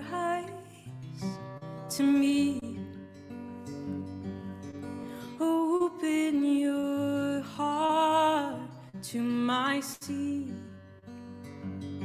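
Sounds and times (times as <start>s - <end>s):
woman singing with vibrato: 0.0s - 1.0s, 1.9s - 2.8s, 5.2s - 10.7s
strummed acoustic guitar: 0.0s - 12.0s.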